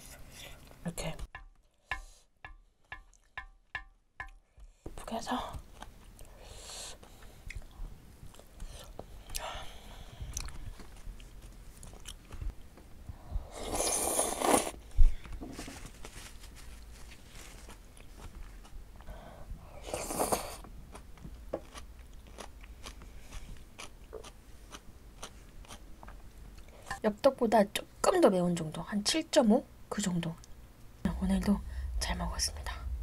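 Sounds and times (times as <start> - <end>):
wet chewing of noodles: 5.7 - 12.5, 13.5 - 14.8, 19.9 - 26.8.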